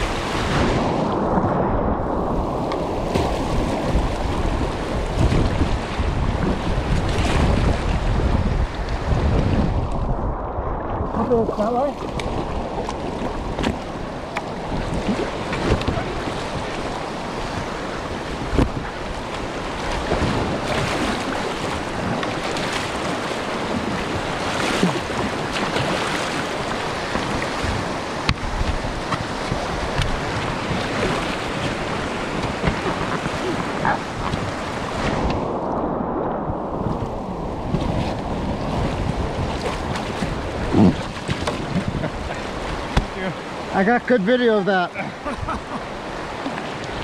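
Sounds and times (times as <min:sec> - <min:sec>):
wind buffeting microphone: 0:00.0 - 0:44.2
river water rushing and splashing: 0:00.0 - 0:47.0
short water splashes: 0:02.6 - 0:07.9, 0:11.1 - 0:35.4, 0:36.8 - 0:44.2.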